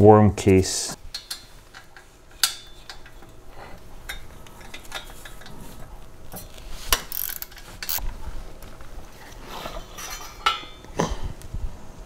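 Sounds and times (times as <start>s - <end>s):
ratchet wrench clicking: 7.1s - 8.0s.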